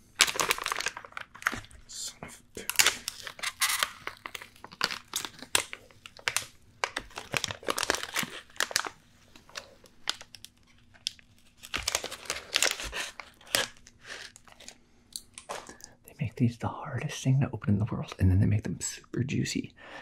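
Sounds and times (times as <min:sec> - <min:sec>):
plastic film crinkling: 0:00.1 - 0:01.9, 0:02.6 - 0:14.8.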